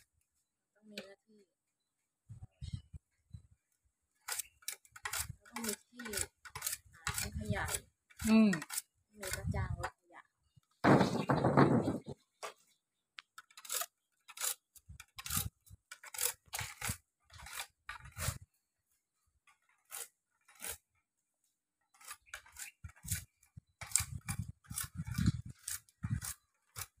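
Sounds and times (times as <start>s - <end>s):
knife scraping sugarcane: 4.2s - 9.5s, 13.4s - 18.4s, 19.5s - 21.0s, 21.8s - 27.0s.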